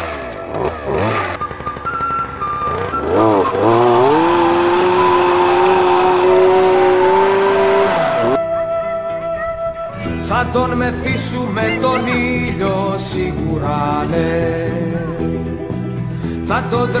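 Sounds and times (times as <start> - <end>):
small petrol engine revving: 0.0 - 8.4.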